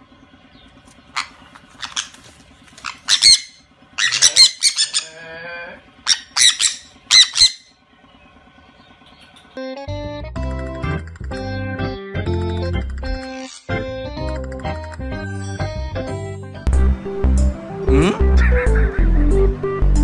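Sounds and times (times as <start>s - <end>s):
parrots squawking: 1.1s - 7.8s, 13.2s - 13.7s
low wavering bird call: 2.8s - 7.8s.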